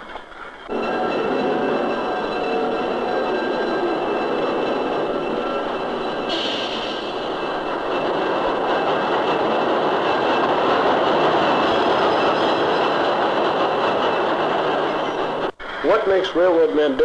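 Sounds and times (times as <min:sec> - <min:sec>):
freight train rumbling and rattling: 0:00.0 - 0:17.0.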